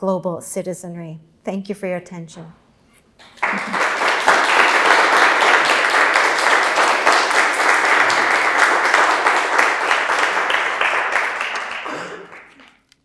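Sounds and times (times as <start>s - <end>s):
audience applauding: 3.2s - 12.9s.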